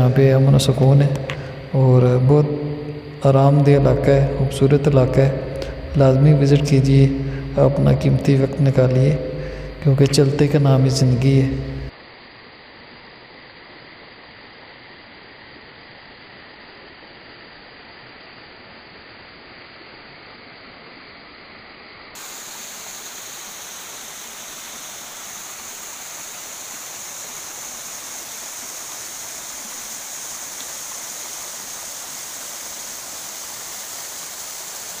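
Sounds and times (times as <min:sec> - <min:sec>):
waterfall rushing: 0:00.0 - 0:11.9, 0:22.2 - 0:35.0.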